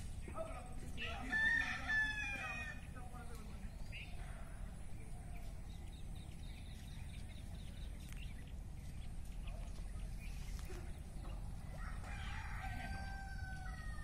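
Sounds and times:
steady low rumble: 0:02.8 - 0:12.1.

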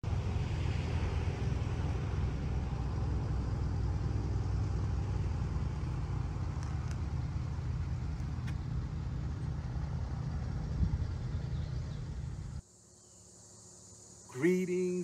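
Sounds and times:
steady low rumble: 0:00.0 - 0:12.6
faint high ticks: 0:06.6 - 0:07.0.

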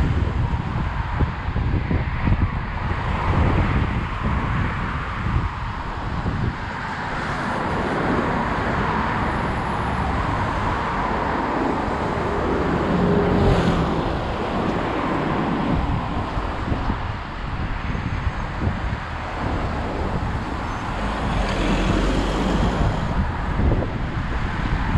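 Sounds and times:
street traffic: 0:00.0 - 0:24.9
wind rushing over microphone: 0:00.0 - 0:24.9
vehicle passing: 0:06.2 - 0:17.7, 0:18.3 - 0:24.3.

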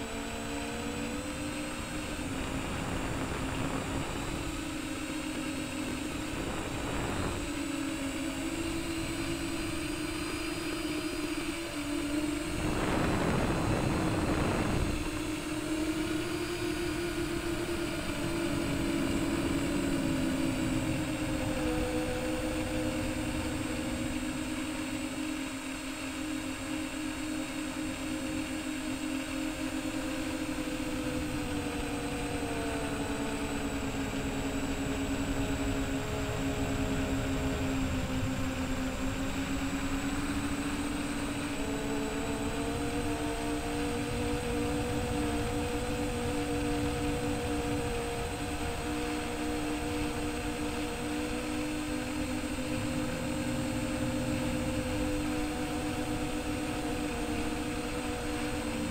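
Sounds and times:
quadcopter motors humming: 0:00.0 - 0:58.9
rushing throttle surge: 0:00.0 - 0:58.9.

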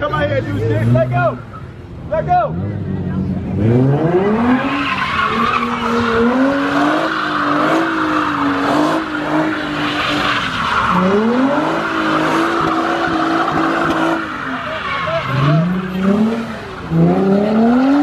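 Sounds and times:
tyres squealing on asphalt: 0:00.0 - 0:18.0
car engine at high revs: 0:00.2 - 0:18.0.

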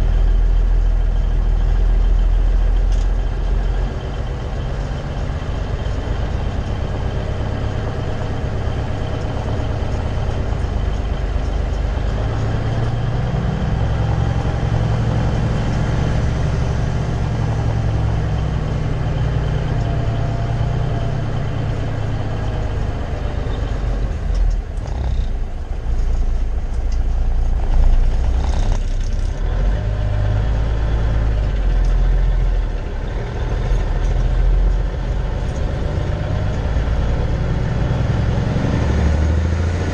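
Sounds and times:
truck engine droning: 0:00.0 - 0:39.9.

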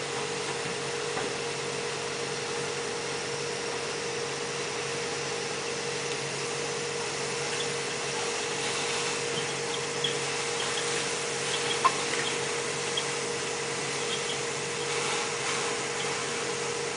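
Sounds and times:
ventilation blower running: 0:00.0 - 0:16.9
faint ticks of tool work: 0:09.3 - 0:15.0.

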